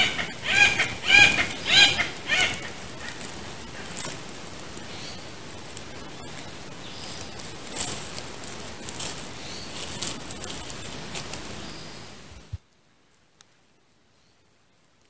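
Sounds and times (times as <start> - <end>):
dry leaves crackling underfoot: 0.0 - 12.6
steady outdoor hiss: 0.0 - 15.0.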